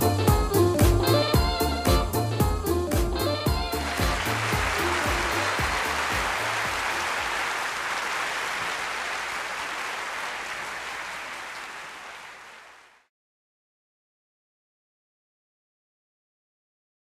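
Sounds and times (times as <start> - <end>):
audience applauding: 3.4 - 13.1.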